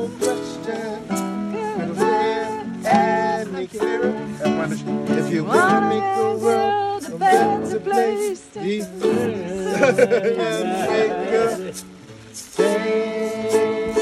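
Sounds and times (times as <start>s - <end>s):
strummed acoustic string instrument: 0.0s - 14.0s
voices singing a pop melody: 0.0s - 14.0s.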